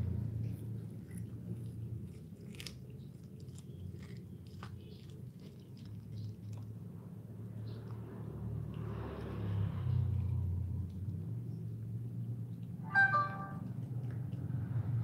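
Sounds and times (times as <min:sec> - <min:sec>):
cat crunching corn: 0:00.0 - 0:12.8, 0:13.6 - 0:15.0.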